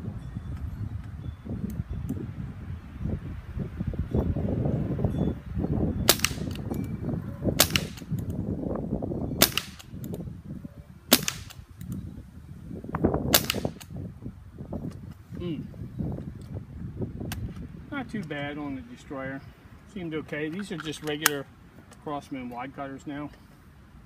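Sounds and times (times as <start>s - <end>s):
wind rumbling on microphone: 0.0s - 22.0s
air rifle shots: 6.1s - 6.7s, 7.6s - 8.3s, 9.4s - 10.0s, 11.1s - 11.7s, 13.3s - 14.0s.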